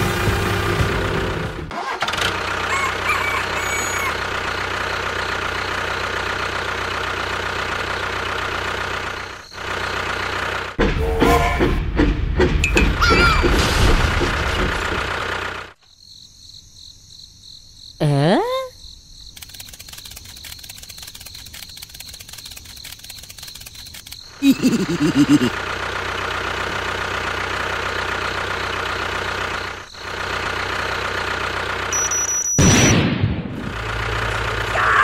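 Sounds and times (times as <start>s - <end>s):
small engine running: 0.0s - 10.8s, 14.0s - 15.8s, 19.3s - 32.3s, 33.6s - 35.0s.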